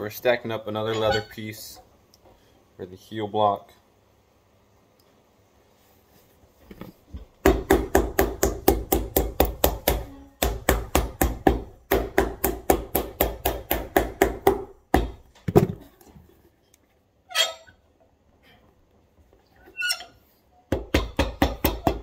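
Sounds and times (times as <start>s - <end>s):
hammer pounding leather heel: 7.4s - 15.2s, 20.7s - 22.0s.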